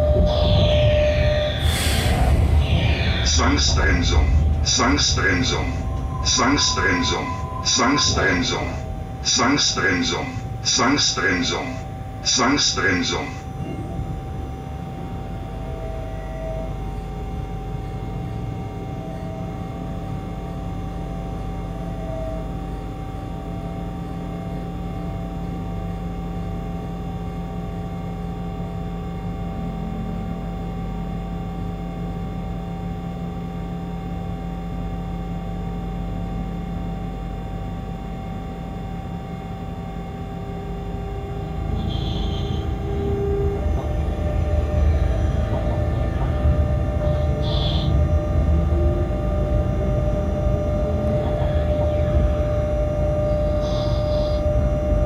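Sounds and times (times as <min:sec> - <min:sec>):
low rough rumble: 0:00.0 - 0:09.3, 0:41.8 - 0:47.5
locomotive machine hum: 0:00.0 - 0:24.4, 0:28.2 - 0:55.0.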